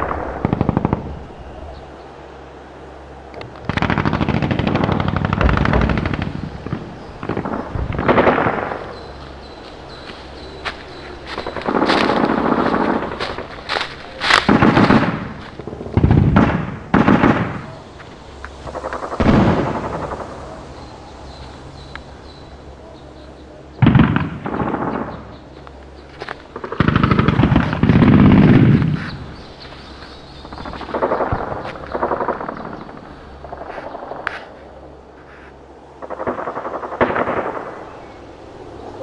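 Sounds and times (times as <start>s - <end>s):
airsoft rifles firing bursts: 3.6s - 9.1s, 10.6s - 17.7s, 23.8s - 25.5s, 26.3s - 29.9s, 30.5s - 34.3s.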